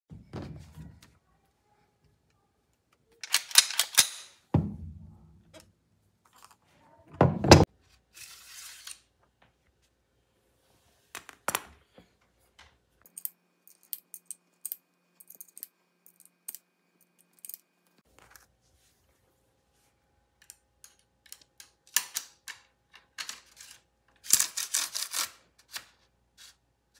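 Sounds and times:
rifle metal clicks and clatter: 0:03.2 - 0:04.4.

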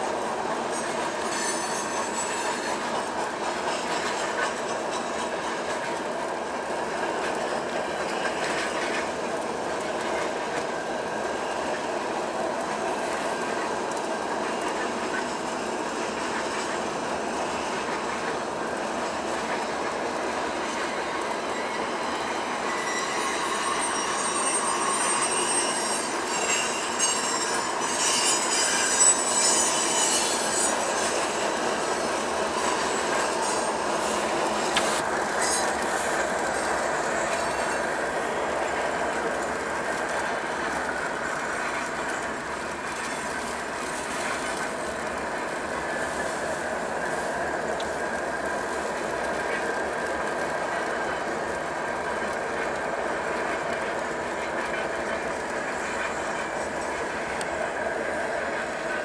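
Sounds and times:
freight train rumbling past: 0:00.0 - 0:59.0
wheel squeal: 0:00.7 - 0:03.0, 0:21.5 - 0:35.8.

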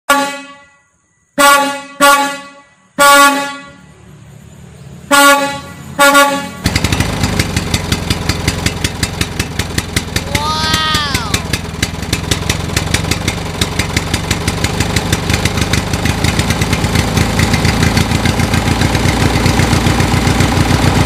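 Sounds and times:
truck air horn blasts: 0:00.1 - 0:03.9, 0:05.1 - 0:06.8
engine puttering: 0:04.2 - 0:21.0.

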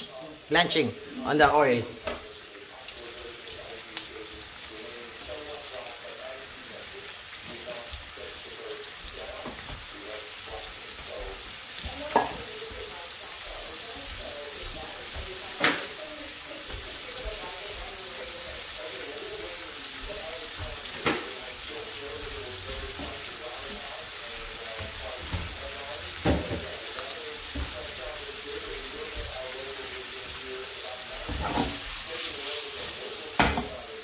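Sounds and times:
vegetables sizzling in oil: 0:00.0 - 0:34.0.

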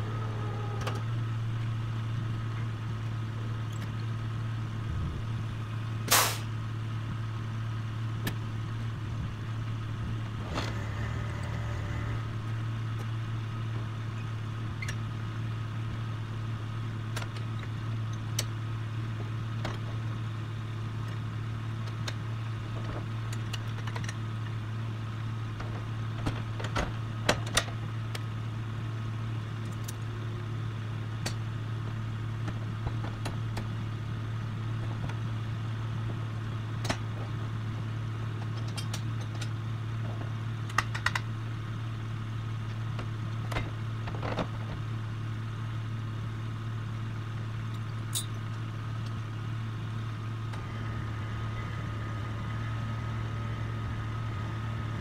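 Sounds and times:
metallic clicks of hook hardware: 0:48.1 - 0:48.4.

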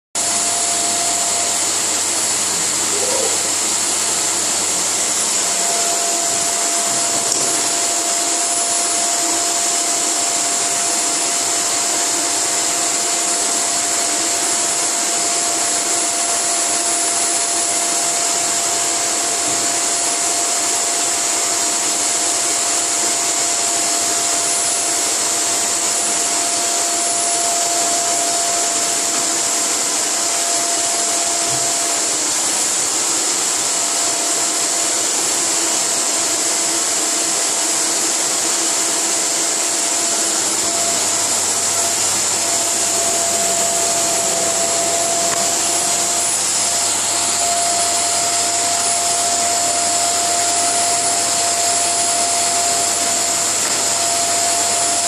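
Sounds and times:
steady tone: 0:00.2 - 0:09.6, 0:39.9 - 0:55.0
vacuum cleaner running: 0:00.2 - 0:55.0.

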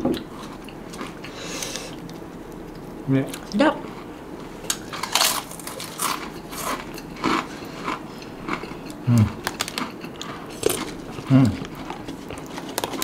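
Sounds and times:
crisps crunching: 0:04.7 - 0:13.0.

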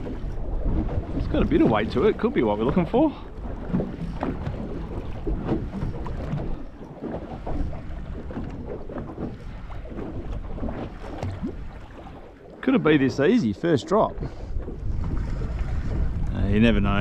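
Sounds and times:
water lapping against boat hull: 0:00.0 - 0:17.0
wind rumbling on microphone: 0:00.0 - 0:17.0.

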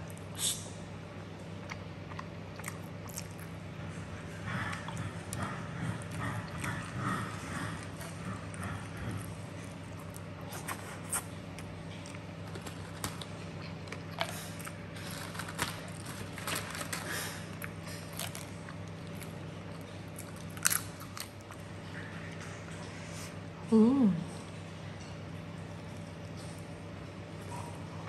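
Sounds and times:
steady low hum: 0:00.0 - 0:28.0
chewing crispy chips: 0:01.4 - 0:22.8.

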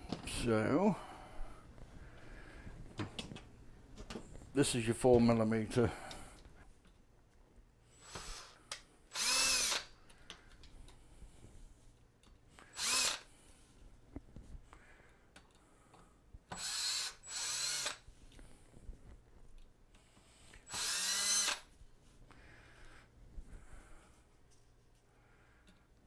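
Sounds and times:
cordless drill spinning: 0:08.0 - 0:10.0, 0:12.6 - 0:13.3, 0:16.5 - 0:18.1, 0:20.5 - 0:21.7.

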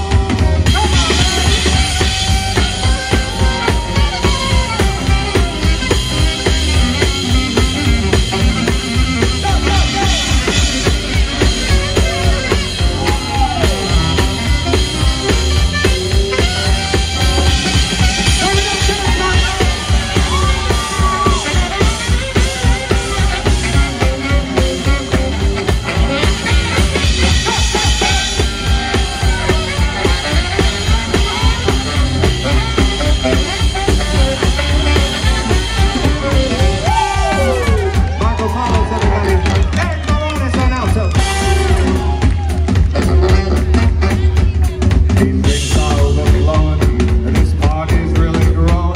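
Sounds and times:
drum kit steady beat: 0:00.0 - 0:48.9
swing band playing: 0:00.0 - 0:48.9.

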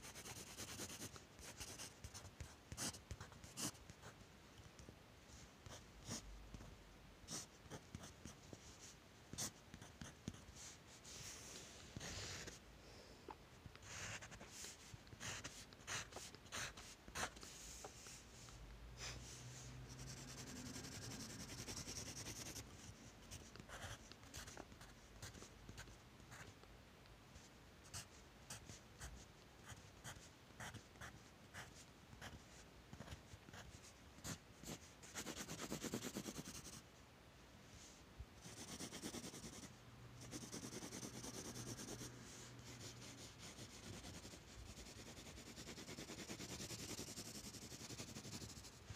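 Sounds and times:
pencil scratching on paper: 0:00.0 - 0:03.8, 0:13.8 - 0:18.2, 0:19.1 - 0:26.4, 0:33.0 - 0:36.8, 0:38.4 - 0:48.8.

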